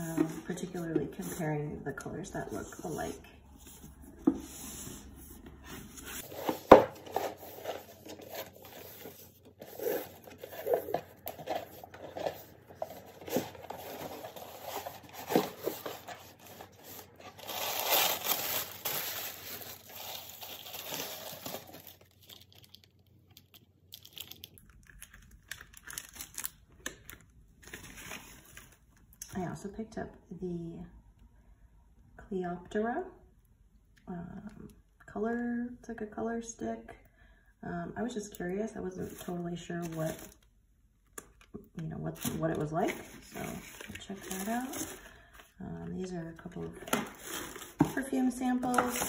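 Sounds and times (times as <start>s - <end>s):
cardboard and ribbon rustling: 0.0s - 1.5s, 2.5s - 22.7s, 39.0s - 40.4s, 42.1s - 49.0s
tissue paper crinkling: 5.6s - 26.6s, 42.8s - 45.1s, 47.1s - 47.9s
shredded paper rustling: 5.8s - 22.5s.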